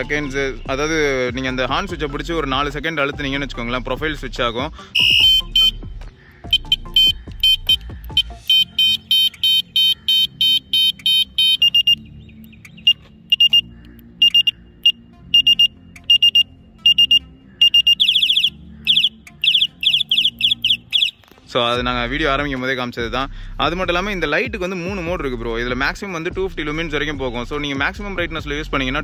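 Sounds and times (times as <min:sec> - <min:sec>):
electronic horn beeps: 0:05.0 - 0:05.8, 0:06.5 - 0:12.0, 0:12.8 - 0:21.2.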